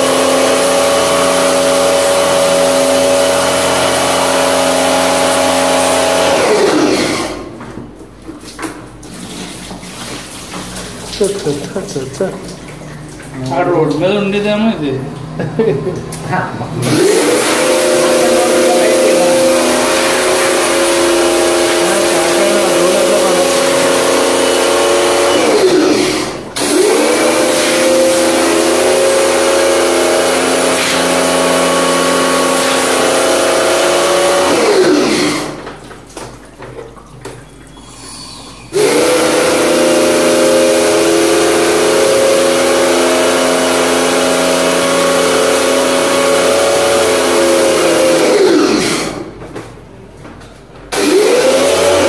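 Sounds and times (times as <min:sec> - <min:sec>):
pressure washer motor hum: 0:00.0 - 0:49.4, 0:50.8 - 0:52.0
water jet hissing: 0:08.3 - 0:14.7, 0:16.8 - 0:35.8, 0:37.0 - 0:49.4.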